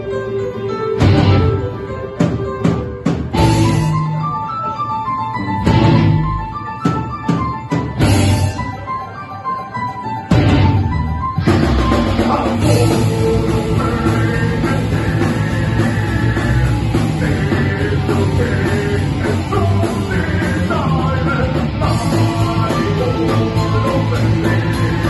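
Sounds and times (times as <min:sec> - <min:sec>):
live rock band playing: 0:00.0 - 0:25.0
man singing: 0:11.9 - 0:25.0.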